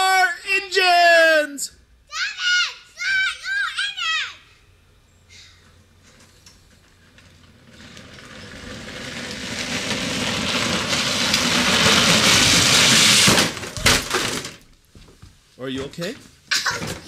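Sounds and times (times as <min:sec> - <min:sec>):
go-kart tyres and motor: 0:06.0 - 0:14.2.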